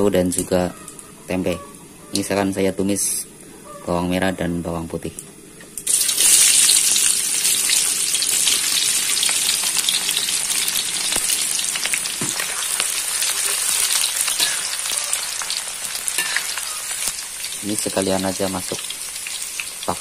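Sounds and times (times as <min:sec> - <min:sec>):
food sizzling in hot oil: 0:05.8 - 0:20.0.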